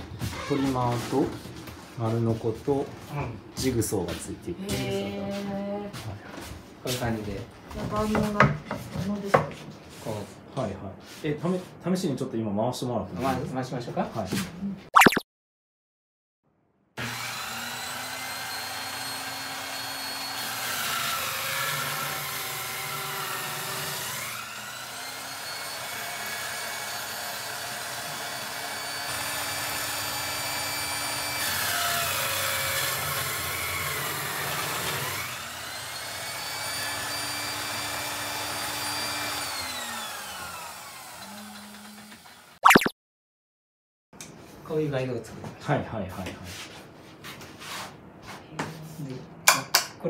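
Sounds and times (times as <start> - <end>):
circular saw cutting wood: 17.0 - 42.6.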